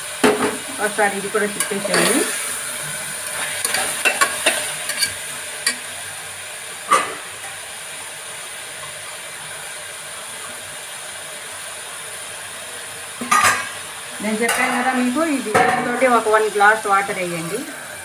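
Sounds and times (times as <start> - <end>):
vegetables sizzling: 0.0 - 18.0
metal spoon scraping a pot: 1.6 - 2.4, 3.2 - 5.8.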